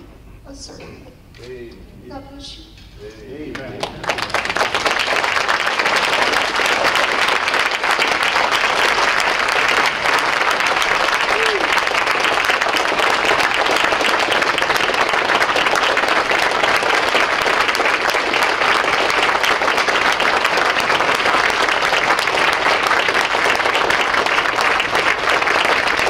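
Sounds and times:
audience applauding: 3.4 - 26.0.

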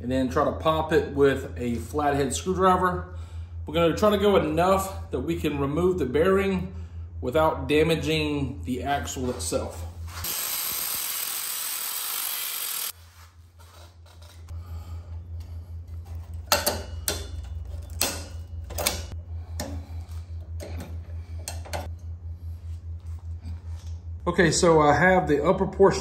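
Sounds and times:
low pulsing hum: 0.0 - 26.0
angle grinder cutting metal: 10.2 - 13.0.

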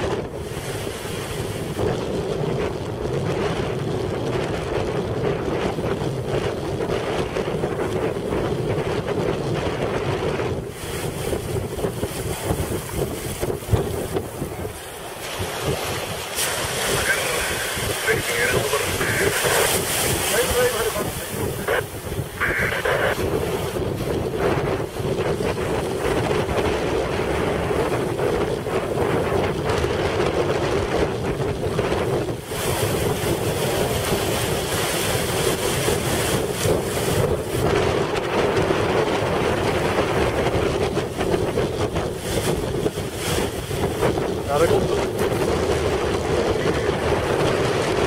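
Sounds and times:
wind buffeting microphone: 0.0 - 48.0
small waves breaking: 10.7 - 29.0.

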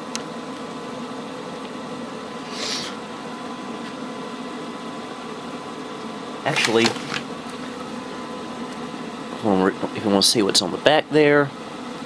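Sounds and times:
room tone hum: 0.0 - 12.0
box rustling: 6.5 - 7.3.

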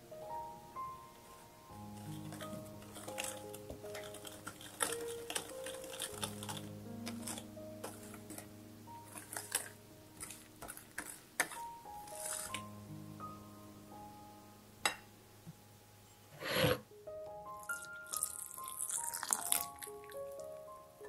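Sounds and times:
soft background music: 0.0 - 21.0
whisk clicking against ceramic bowl: 2.1 - 8.4, 9.1 - 12.6.

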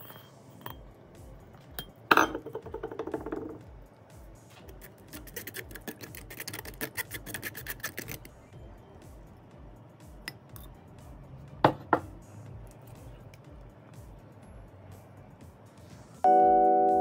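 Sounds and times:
spoon scraping through mesh sieve: 4.7 - 8.3.

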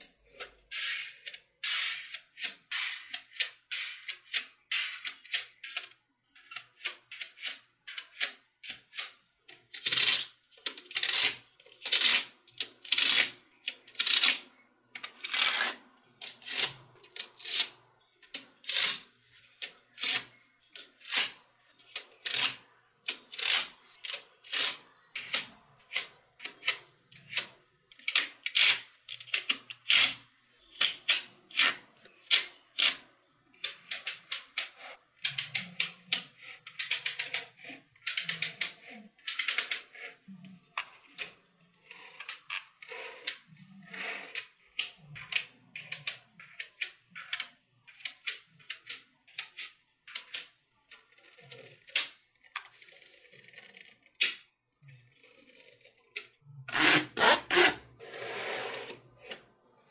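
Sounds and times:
magnet balls clicking together: 33.6 - 39.9.

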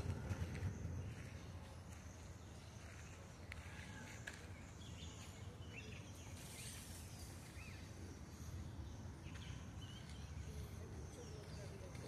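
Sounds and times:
low steady rumble: 0.0 - 3.2
small birds chirping: 0.0 - 12.0.

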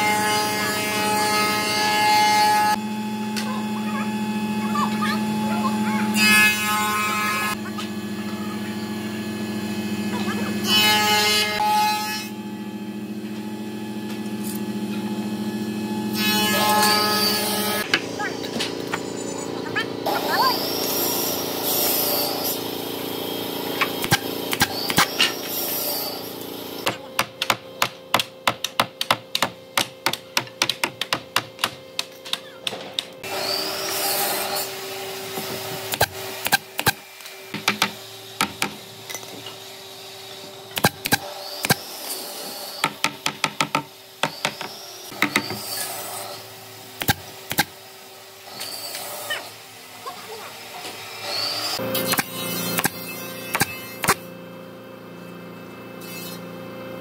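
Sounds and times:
nail gun shooting into wood: 24.0 - 25.2.

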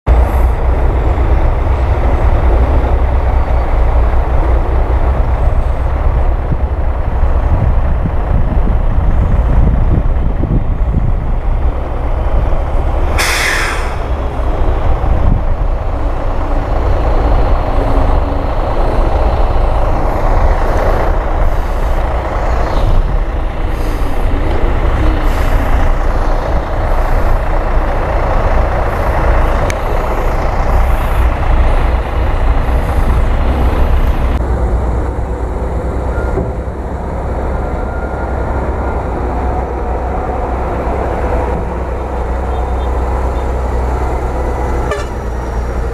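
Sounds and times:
diesel truck engines rumbling: 0.1 - 45.9
air brake hissing: 13.1 - 14.2.

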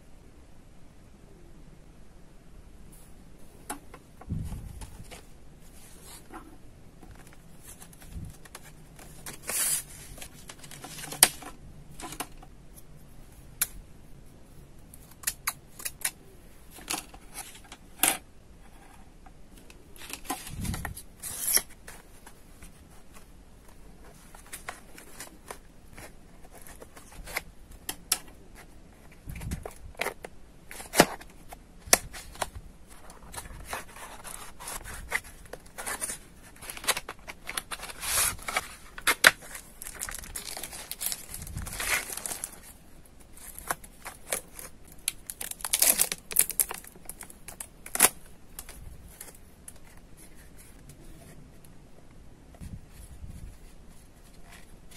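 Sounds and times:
plastic packaging crinkling: 24.0 - 49.9.

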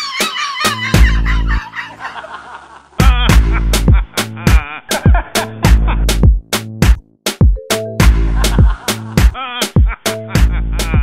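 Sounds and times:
dance music with heavy drum beat: 3.0 - 11.0.

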